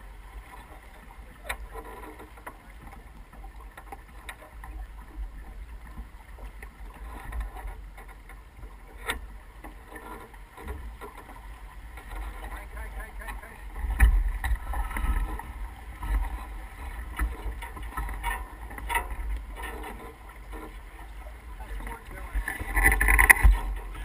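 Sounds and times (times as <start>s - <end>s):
water rushing along boat hull: 0.0s - 24.0s
sharp knocks from boat: 0.5s - 24.0s
wind rumble on microphone: 10.5s - 24.0s.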